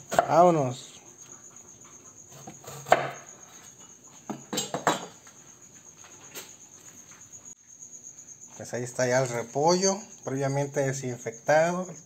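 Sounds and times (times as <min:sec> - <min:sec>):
crickets chirping: 0:00.0 - 0:12.0
kitchen utensils and dishes clinking: 0:03.7 - 0:05.2.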